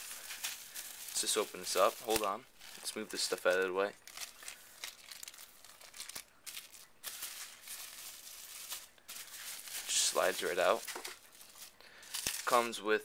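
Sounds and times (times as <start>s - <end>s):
plastic packaging crinkling: 0.0s - 12.8s.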